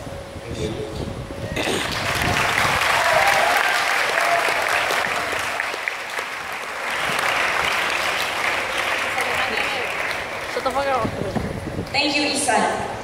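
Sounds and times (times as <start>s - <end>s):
large audience applauding: 1.6s - 11.6s.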